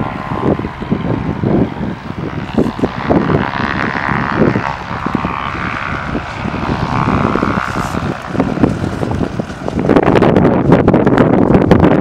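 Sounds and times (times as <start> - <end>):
propeller aircraft engine droning: 0.0 - 12.0
wind buffeting microphone: 0.0 - 12.0.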